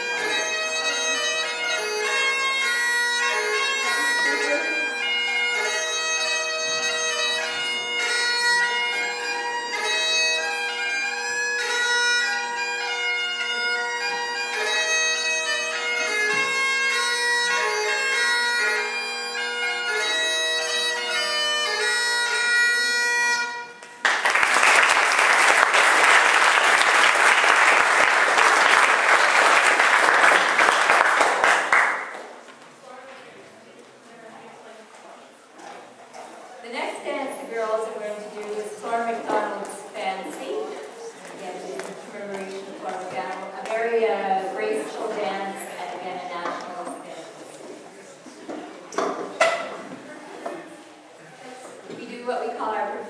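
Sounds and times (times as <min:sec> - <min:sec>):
bagpipe playing a tune: 0:00.0 - 0:32.1
audience applause: 0:24.0 - 0:32.4.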